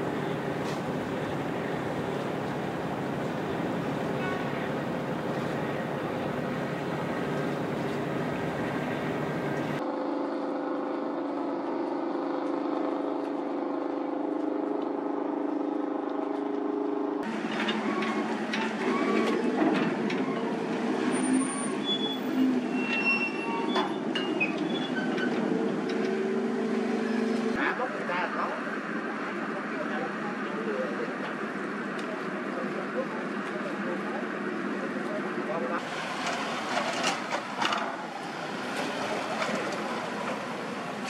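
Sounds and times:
faint voices: 0.0 - 9.8
ship engine drone: 0.0 - 24.8.

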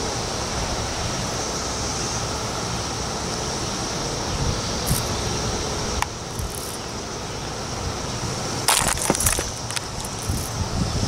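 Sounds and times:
cicadas droning: 0.0 - 11.0
rustling and crackling: 6.3 - 6.8, 8.7 - 10.6.

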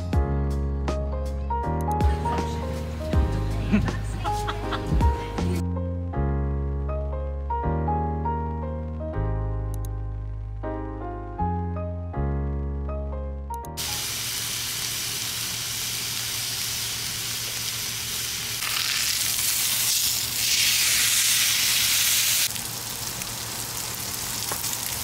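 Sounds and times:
food sizzling in a pan: 13.8 - 25.0.

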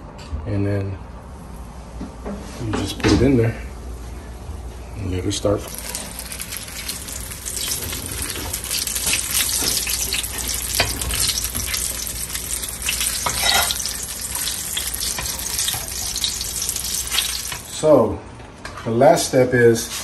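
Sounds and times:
crackling frying sizzle: 5.6 - 17.8.

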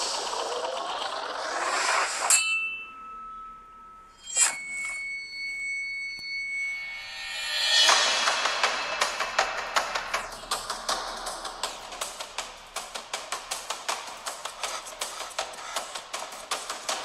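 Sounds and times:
sharp hit with ringing ding: 2.3 - 8.9.

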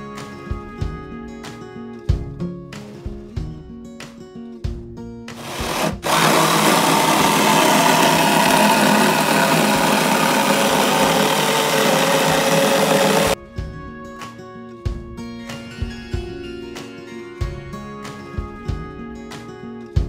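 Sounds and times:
acoustic guitar music: 0.0 - 6.1, 13.5 - 20.0
power tool running into wood: 5.4 - 13.4.

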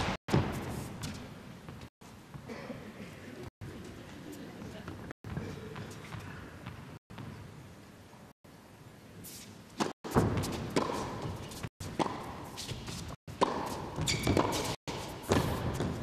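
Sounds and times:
shoe squeak: 9.3 - 16.0
ball bouncing on court: 9.8 - 16.0
racquets striking tennis ball: 9.8 - 16.0.

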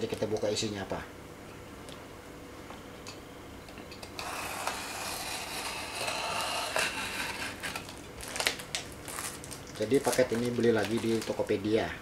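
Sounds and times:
knife slicing tape and cardboard: 4.2 - 7.9.

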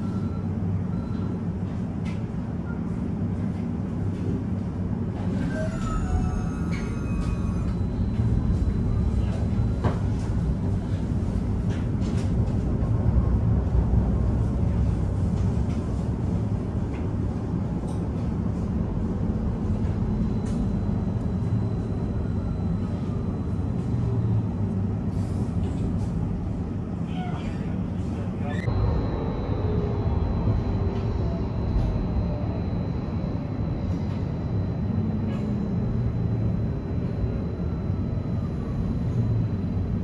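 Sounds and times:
tram rumbling: 0.0 - 40.0
faint high whine: 28.6 - 40.0.

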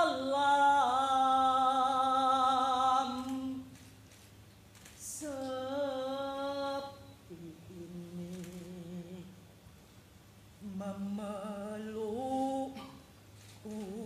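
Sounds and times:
woman humming a slow melody: 5.2 - 9.3, 13.6 - 14.0.

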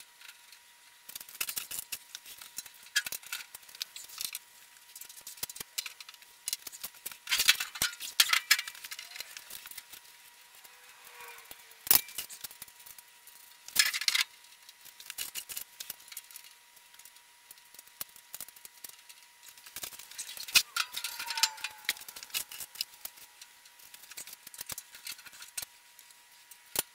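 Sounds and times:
steel panels clattering: 20.1 - 23.4.

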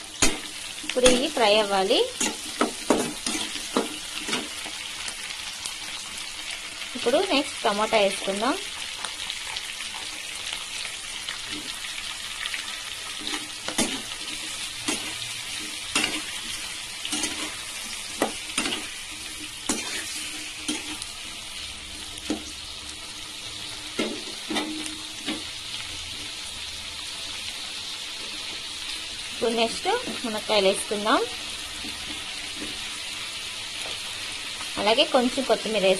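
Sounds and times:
vegetables sizzling in hot oil: 0.0 - 35.9
spatula scraping metal pan: 13.2 - 21.1.

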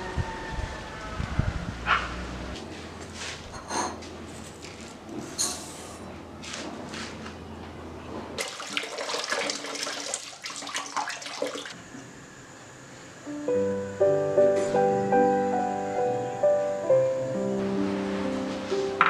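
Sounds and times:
gentle instrumental music: 13.3 - 19.0.

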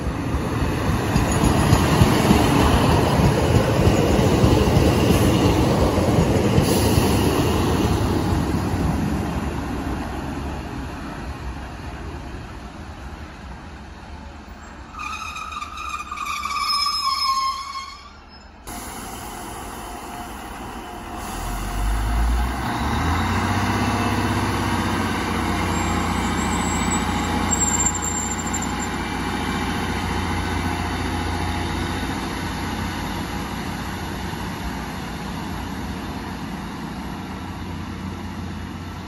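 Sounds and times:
train diesel engines rumbling: 0.0 - 39.0
high squeal: 14.6 - 19.0, 25.6 - 29.0.

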